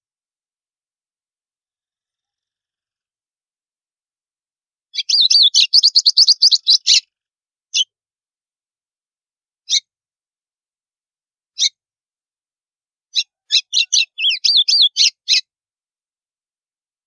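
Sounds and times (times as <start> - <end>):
sharp bird notes: 5.0 - 7.0, 13.2 - 15.4.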